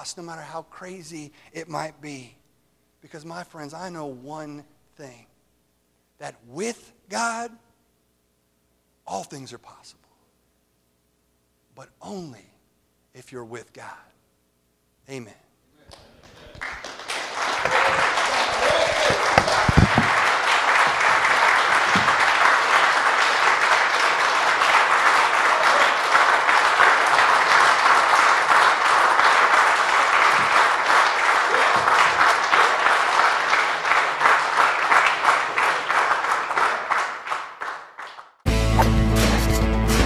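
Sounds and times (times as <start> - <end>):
crowd applauding: 15.9 - 39.4.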